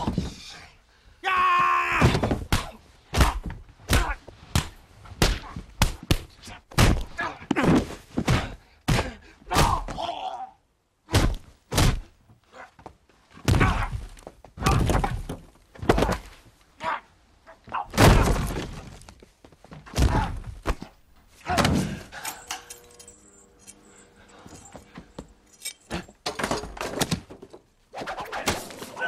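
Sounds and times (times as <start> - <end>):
person yelling: 1.2 - 2.2
punches and thuds: 2.0 - 10.1, 11.1 - 12.1, 13.4 - 16.4, 17.8 - 19.0, 19.8 - 22.1
pained grunts and groans: 7.1 - 10.6, 13.4 - 15.2, 19.9 - 20.6, 21.4 - 22.6.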